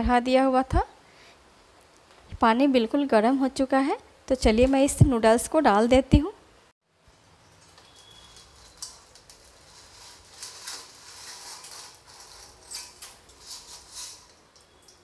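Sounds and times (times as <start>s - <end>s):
dry noodles rustling in pot: 7.7s - 15.0s.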